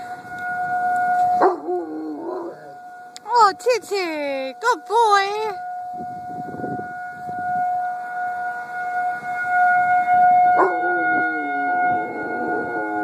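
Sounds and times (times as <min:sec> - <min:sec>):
siren steady tone: 0:00.0 - 0:13.0
dog howling: 0:01.4 - 0:02.8, 0:10.6 - 0:13.0.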